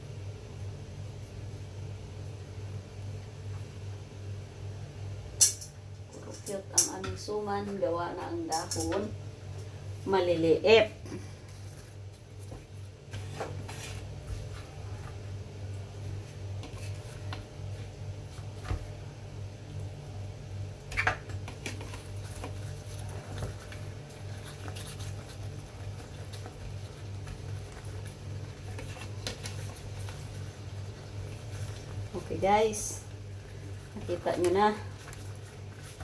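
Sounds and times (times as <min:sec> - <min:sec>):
steady low hum: 0:00.0 - 0:36.0
small clicks of utensils: 0:05.4 - 0:07.2.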